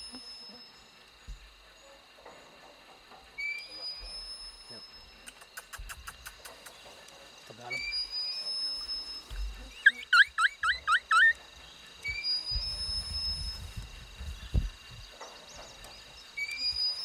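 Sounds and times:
songbird whistling rising notes: 3.3 - 5.3, 7.6 - 17.0.

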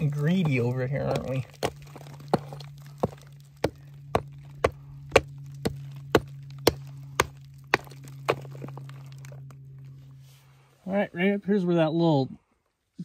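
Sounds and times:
pick striking clay and rock: 0.0 - 9.6
steady low hum: 0.0 - 13.0.

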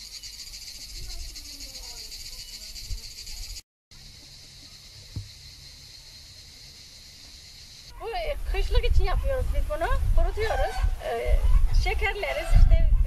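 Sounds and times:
cicada chorus buzzing: 0.0 - 8.0
faint knock: 4.2 - 5.4.

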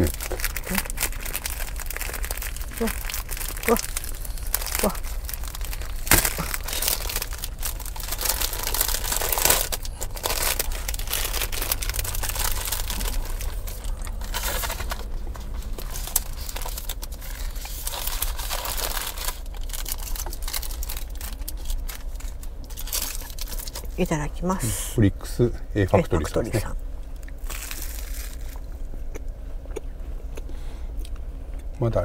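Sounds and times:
plastic wrapping crinkling and tearing: 0.0 - 24.0, 27.2 - 28.7.

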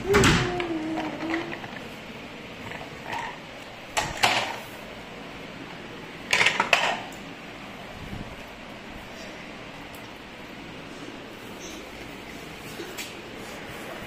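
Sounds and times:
plastic toy clattering: 6.3 - 7.1.

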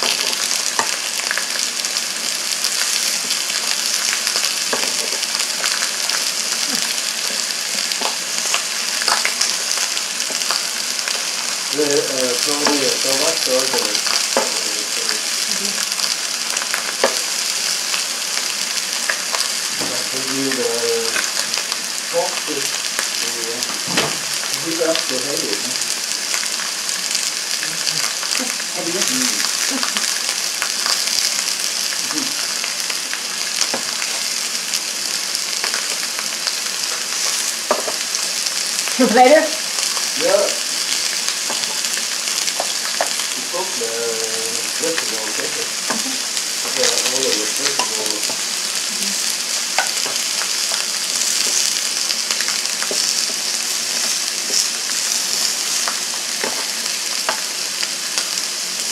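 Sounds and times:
food sizzling on a grill: 0.0 - 58.9.

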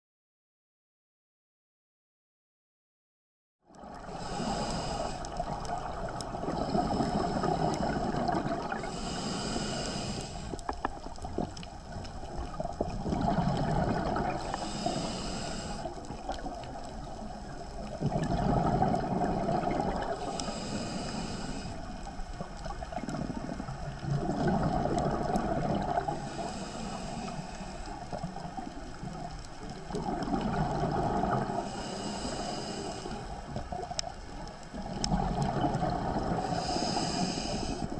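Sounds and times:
hissing regulator inhale: 3.8 - 10.9, 13.4 - 16.2, 18.4 - 22.5, 26.0 - 28.3, 30.8 - 33.6, 35.8 - 37.9
gurgling exhaled bubbles: 3.8 - 37.9.

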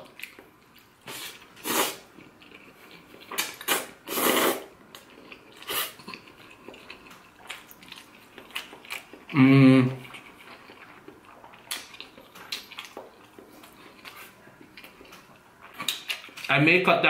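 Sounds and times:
person chewing: 0.0 - 16.5
person slurping noodles: 1.1 - 2.1, 3.7 - 4.7.

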